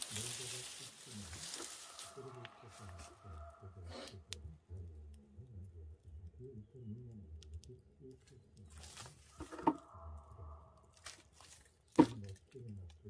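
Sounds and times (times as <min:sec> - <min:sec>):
dry branches rustling: 0:00.0 - 0:03.2, 0:08.7 - 0:09.9, 0:10.8 - 0:12.4
branch snapping: 0:01.3 - 0:03.1, 0:10.9 - 0:12.5
low fire rumble: 0:02.1 - 0:13.0.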